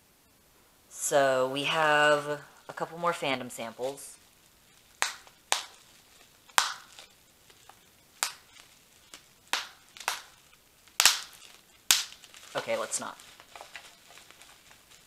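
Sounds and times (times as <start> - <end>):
bubble wrap popping: 1.8 - 15.0.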